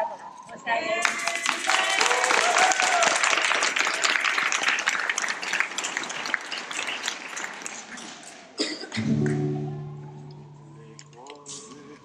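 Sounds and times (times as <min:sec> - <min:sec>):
small group applauding: 0:01.0 - 0:08.6.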